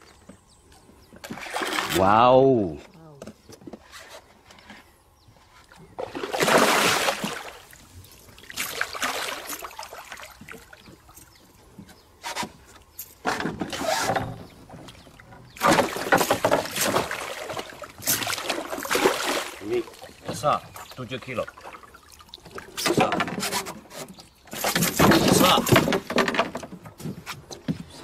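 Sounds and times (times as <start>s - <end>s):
fish thrashing water splashing: 6.0s - 10.8s, 15.6s - 20.4s.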